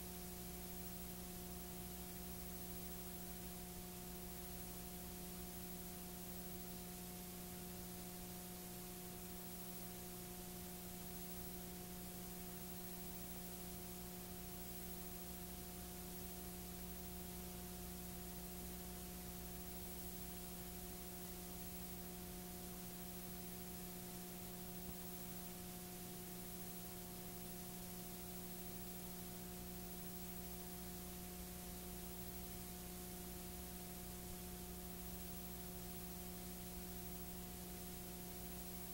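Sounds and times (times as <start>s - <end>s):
electrical hum with hiss: 0.0s - 38.9s.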